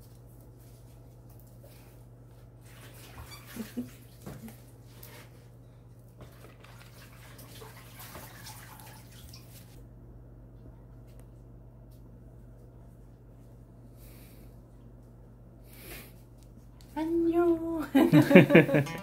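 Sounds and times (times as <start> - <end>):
steady low hum: 9.7 - 19.0.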